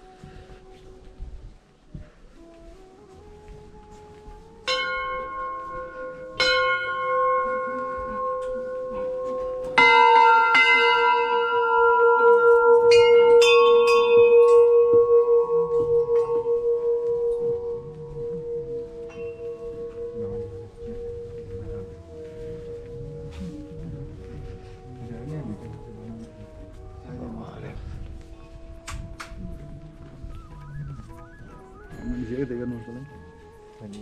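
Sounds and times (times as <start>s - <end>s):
brass bells struck and ringing: 4.7s - 20.4s.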